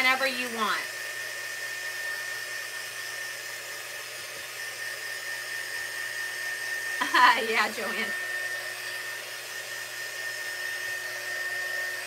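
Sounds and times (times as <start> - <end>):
heat tool blowing with high whine: 0.0 - 12.0.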